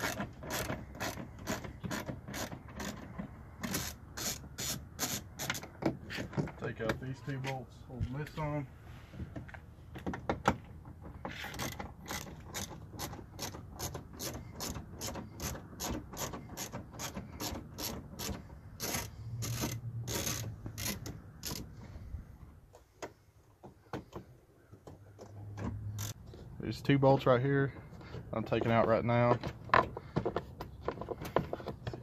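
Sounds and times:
socket ratchet clicking: 11.6s - 21.7s, 25.9s - 26.2s.

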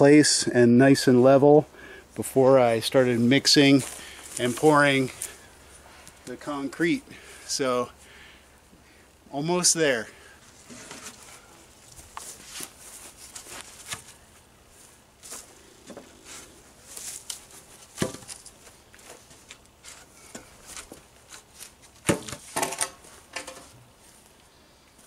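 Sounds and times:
rustling: 10.4s - 24.5s
wooden board thud: 18.0s - 18.3s, 22.0s - 23.6s.

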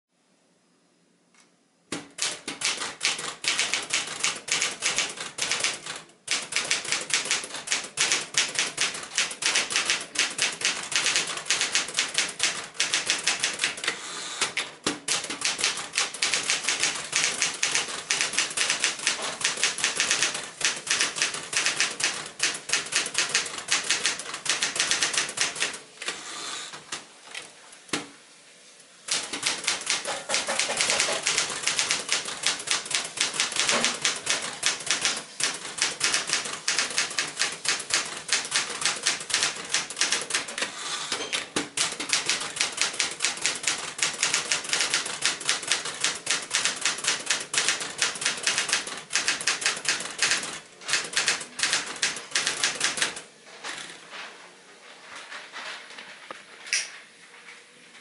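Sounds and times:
typewriter keys clacking: 2.0s - 26.2s, 29.1s - 40.7s, 41.4s - 53.9s.

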